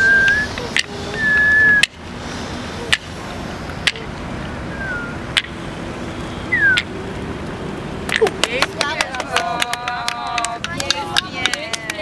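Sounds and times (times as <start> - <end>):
sharp handclaps: 8.0 - 12.0.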